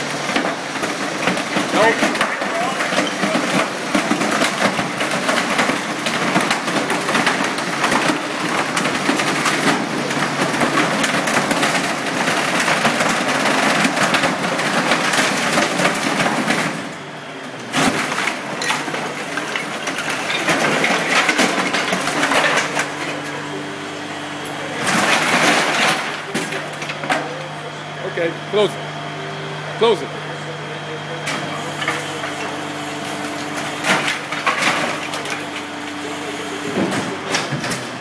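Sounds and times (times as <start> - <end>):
desk cracking and breaking: 0.1 - 17.0, 17.7 - 23.4, 24.7 - 27.4, 33.2 - 35.7.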